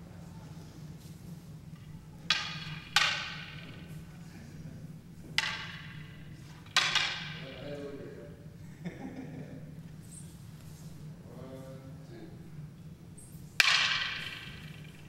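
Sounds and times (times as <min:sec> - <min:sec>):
wooden staffs clacking together: 0:01.7 - 0:04.2, 0:05.1 - 0:08.0, 0:13.3 - 0:15.0.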